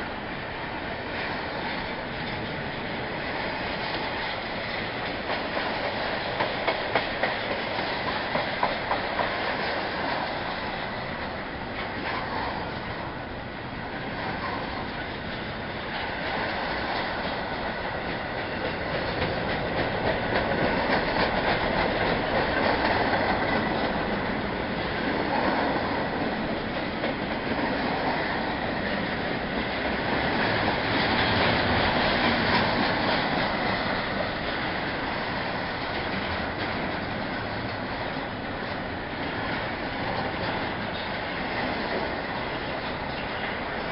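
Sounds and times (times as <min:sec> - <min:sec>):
steel wheels on rails: 0:00.0 - 0:43.9.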